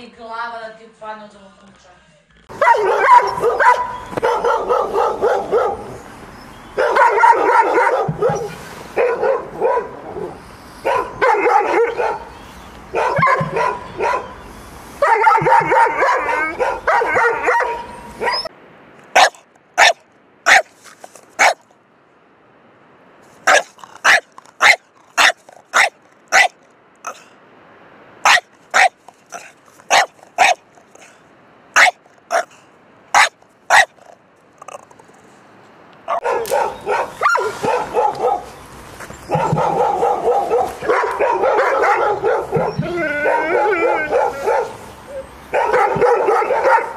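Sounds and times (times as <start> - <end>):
large dog barking rapidly: 2.5 - 6.0, 6.8 - 12.3, 12.9 - 14.3, 15.0 - 18.4, 19.2 - 20.7, 21.4 - 21.6, 23.5 - 27.2, 28.2 - 31.1, 31.8 - 34.2, 36.1 - 38.5, 39.3 - 44.8, 45.5 - 46.9.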